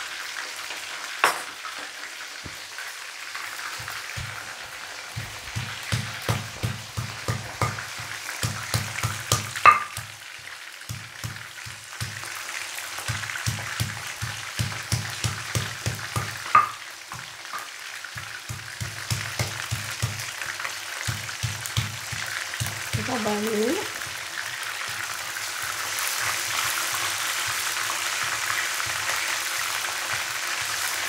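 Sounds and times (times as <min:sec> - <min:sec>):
fish deep-frying in oil: 0:00.0 - 0:31.0.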